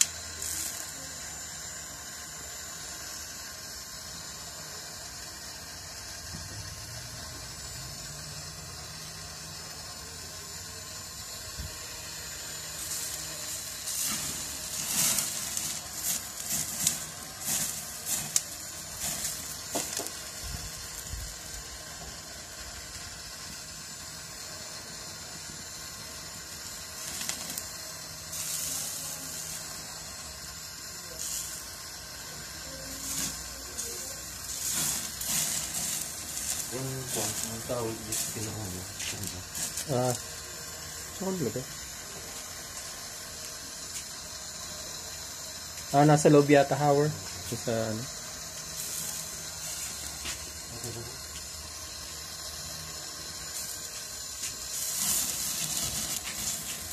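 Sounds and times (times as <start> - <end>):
fat hissing on grill flames: 0.0 - 56.9
sizzling and crackling: 0.0 - 56.9.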